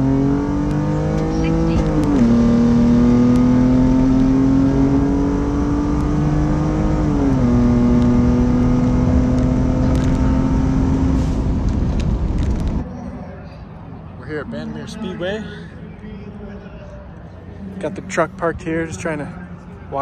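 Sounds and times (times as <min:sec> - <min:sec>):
pickup engine at full throttle: 0:00.0 - 0:12.8.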